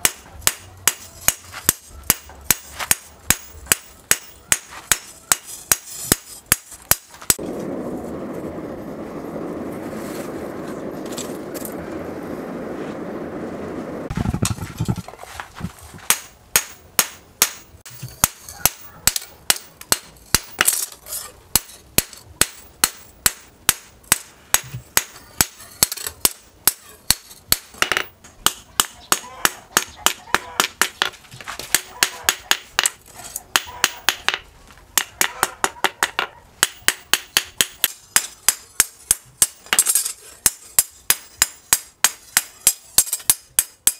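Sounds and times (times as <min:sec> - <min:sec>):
steady rushing noise: 0:07.3 - 0:16.0.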